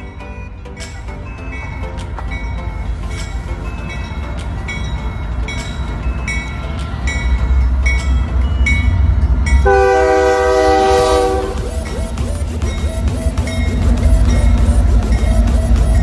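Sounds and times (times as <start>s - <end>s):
diesel locomotives rumbling past: 0.0s - 16.0s
locomotive air horn blast: 9.6s - 12.2s.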